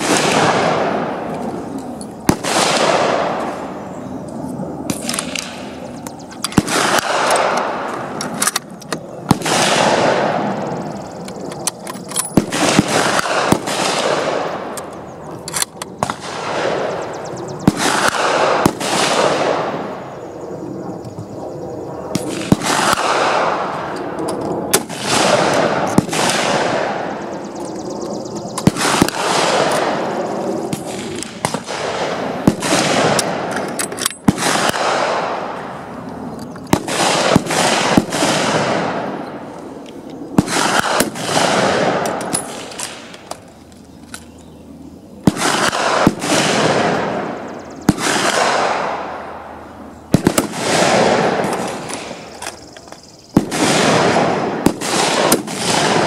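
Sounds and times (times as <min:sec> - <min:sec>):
rifle shots echoing: 0:00.0 - 0:20.6, 0:22.0 - 0:43.5, 0:45.2 - 0:56.0.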